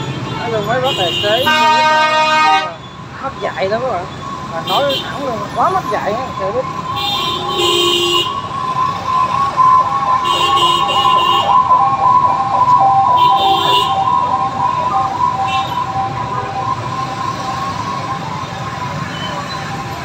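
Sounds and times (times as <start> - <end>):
heavy street traffic: 0.0 - 20.0
vehicle horn honking: 0.8 - 2.8, 7.0 - 8.4
emergency siren warbling: 1.4 - 20.0.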